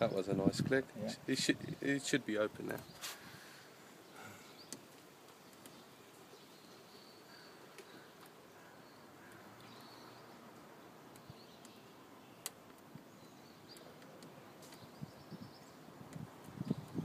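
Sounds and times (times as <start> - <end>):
faint bird chirps: 5.4 - 10.4.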